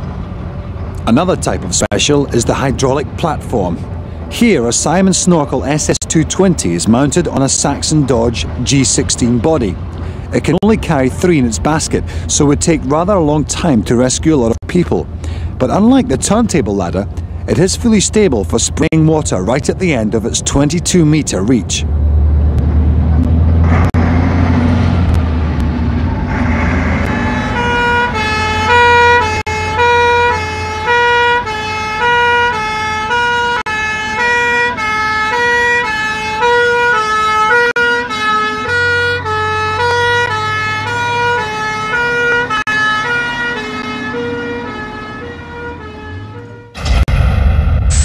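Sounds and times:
engine rumble: 0.0 - 33.0, 39.1 - 48.0
fire engine two-tone siren: 26.2 - 47.0
sudden burst of noise: 46.8 - 48.0.

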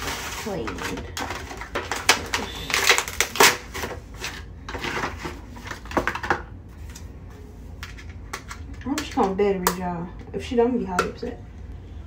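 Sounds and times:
plastic packaging crackling: 0.0 - 5.9.

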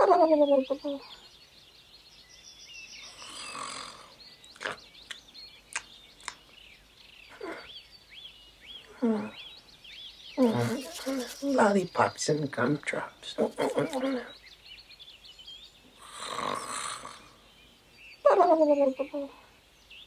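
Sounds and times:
birdsong chirps: 0.0 - 20.0
snore-like sigh: 3.1 - 4.2, 16.0 - 17.4.

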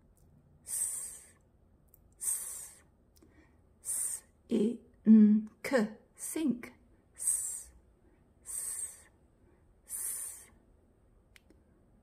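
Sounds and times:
woman hissing s sound: 0.7 - 1.4, 2.2 - 2.9, 3.8 - 4.3, 7.2 - 7.8, 8.4 - 9.1, 9.9 - 10.6.

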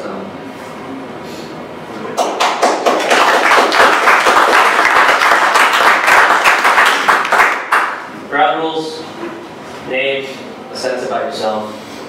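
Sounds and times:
audience applauding: 2.2 - 8.0.

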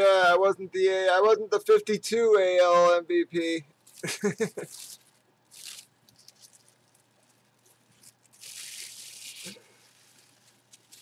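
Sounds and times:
tissue paper rustling and crinkling: 3.8 - 11.0.

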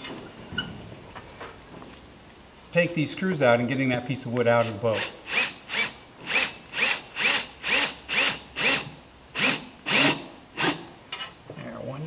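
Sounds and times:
cordless drill driving screw into wood: 5.0 - 10.9.

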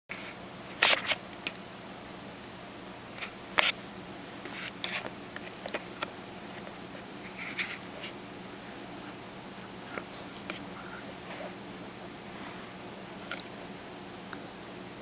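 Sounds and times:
puppy chewing on a toy: 4.5 - 11.9.

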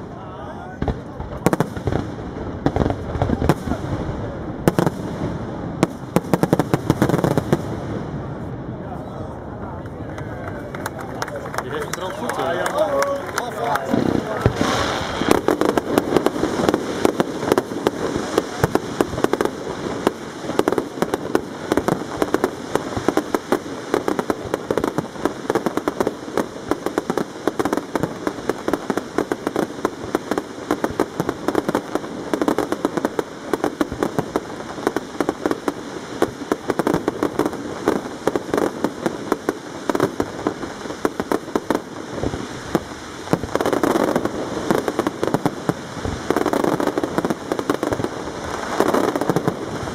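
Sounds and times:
fireworks bursts and crackle: 0.0 - 49.9.

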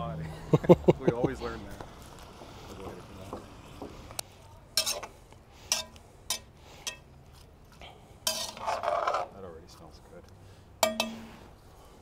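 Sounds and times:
fork scraping in metal pot: 4.8 - 5.1, 5.7 - 7.0, 8.2 - 9.3.

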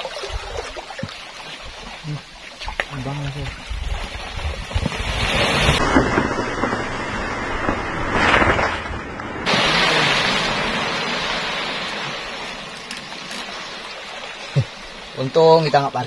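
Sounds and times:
water splashing: 0.0 - 16.0
wind on microphone: 3.0 - 8.7.

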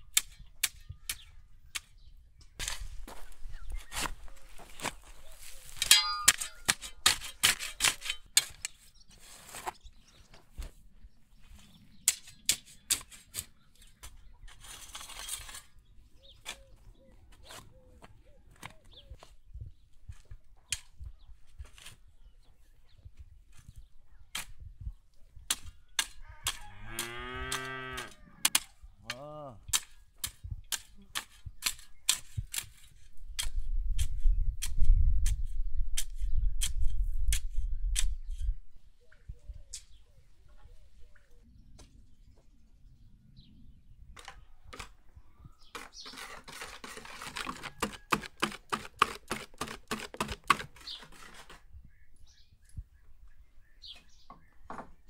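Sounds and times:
cow mooing: 26.3 - 28.4.

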